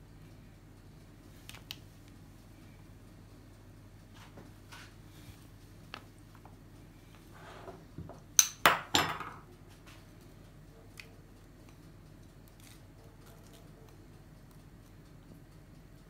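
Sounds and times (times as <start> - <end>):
dishes clinking together: 8.4 - 9.4.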